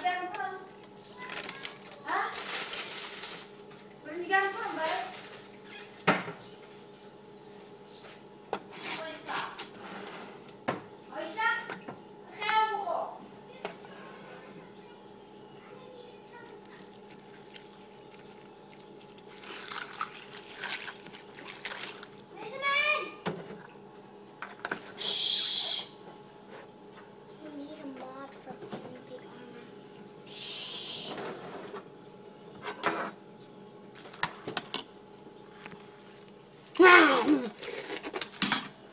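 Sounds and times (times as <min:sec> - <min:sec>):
cereal clicks and crackles: 0:01.2 - 0:03.6, 0:16.3 - 0:22.3
milk pouring onto cereal: 0:16.4 - 0:22.2.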